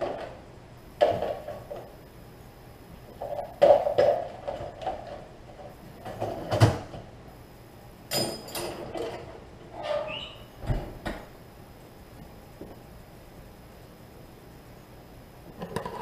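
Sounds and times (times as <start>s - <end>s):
household knocks and clatter: 6.0s - 7.0s.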